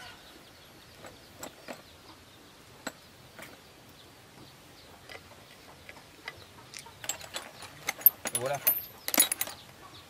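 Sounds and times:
metal tools clinking: 7.0 - 9.6.

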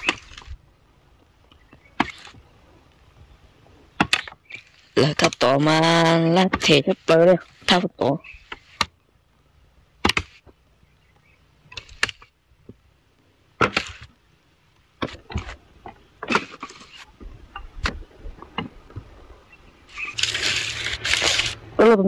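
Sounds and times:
sharp knocks and cracks: 1.7 - 2.4, 4.0 - 5.4, 10.0 - 10.6.

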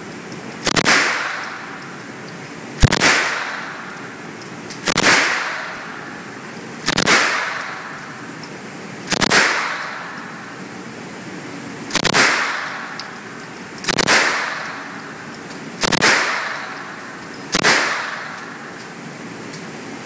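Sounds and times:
submachine gun bursts echoing: 9.1 - 10.1, 13.8 - 14.9, 15.8 - 18.6.

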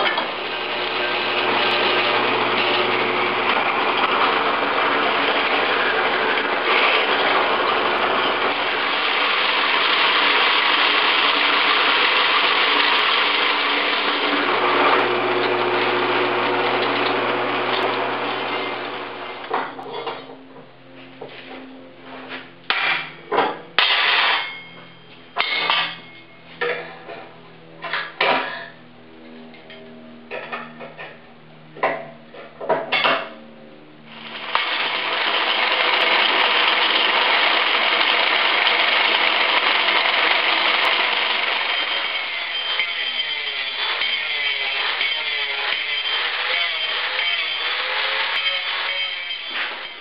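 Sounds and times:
angle grinder cutting steel: 0.0 - 20.2, 34.1 - 50.0.

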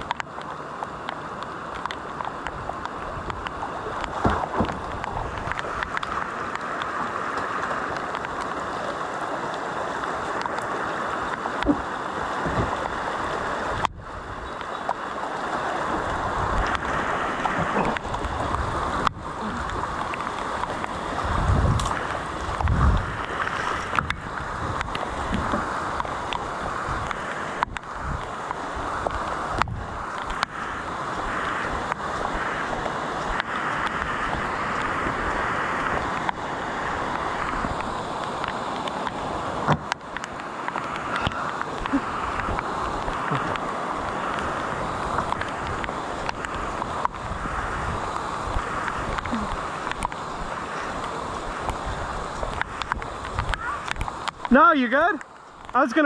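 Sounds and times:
floodwater rushing: 0.0 - 56.0
splashes and knocks: 1.8 - 8.5, 11.3 - 13.0, 15.9 - 28.3.

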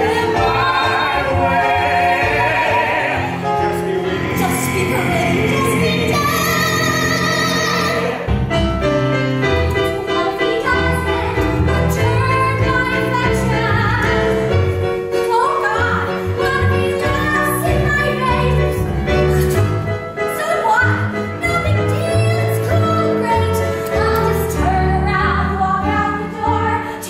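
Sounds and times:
several voices singing: 0.0 - 8.3.

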